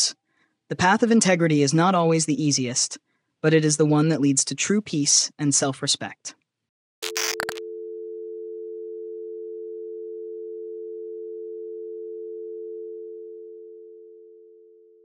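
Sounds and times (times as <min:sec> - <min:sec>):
steady electronic tone: 0:07.0 - 0:07.6.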